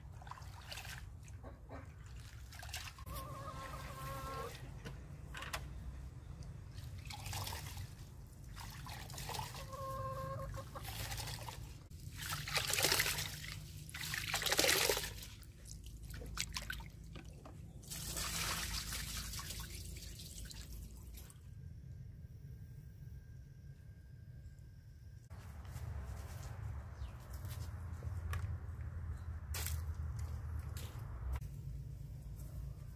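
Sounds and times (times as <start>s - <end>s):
water sloshing in metal bowl: 0.0s - 3.9s, 6.7s - 9.7s, 10.6s - 21.4s
hen clucking: 1.4s - 2.0s, 3.0s - 4.8s, 9.2s - 11.2s.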